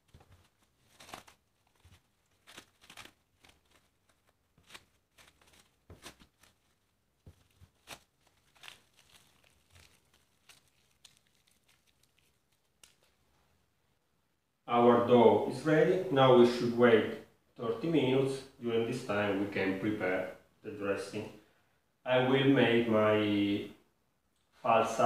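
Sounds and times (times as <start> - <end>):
cling film crinkling: 0.0 - 13.4.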